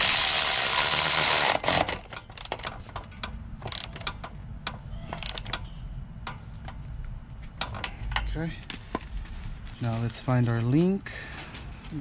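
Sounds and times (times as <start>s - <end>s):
power tool running: 0.0s - 2.0s
sharp metallic clicks: 1.5s - 6.8s.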